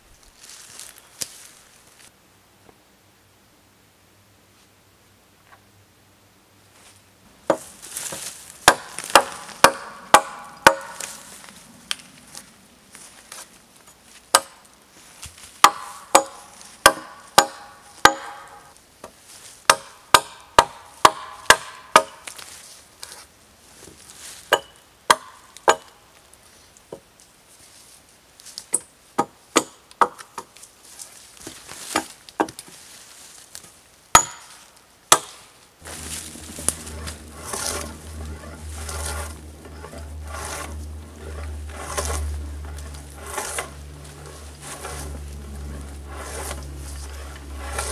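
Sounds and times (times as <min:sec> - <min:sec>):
rustling: 0:00.0 - 0:02.2, 0:06.7 - 0:19.7, 0:22.2 - 0:24.6, 0:30.6 - 0:47.9
hatchet chopping wood: 0:08.6 - 0:11.2, 0:14.3 - 0:14.6, 0:15.6 - 0:18.7, 0:19.7 - 0:22.4, 0:24.5 - 0:26.0, 0:28.8 - 0:30.5, 0:34.1 - 0:34.5, 0:35.1 - 0:35.4, 0:47.6 - 0:47.9
low rumble: 0:35.8 - 0:47.9.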